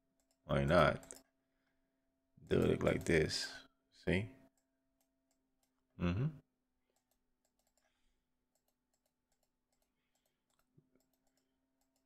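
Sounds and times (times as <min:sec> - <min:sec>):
computer clicking: 0:00.2 - 0:01.3, 0:02.5 - 0:03.4, 0:06.9 - 0:12.0.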